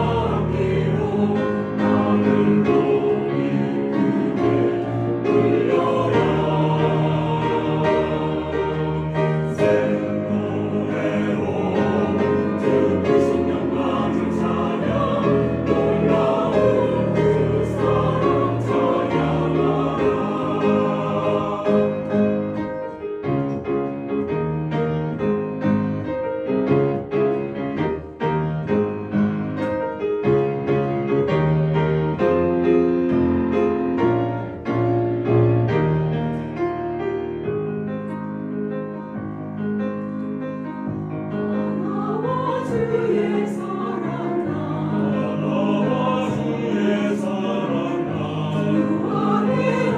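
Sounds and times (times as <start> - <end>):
choir singing a hymn: 0.0 - 23.0, 40.8 - 49.9
piano accompaniment: 0.0 - 49.9.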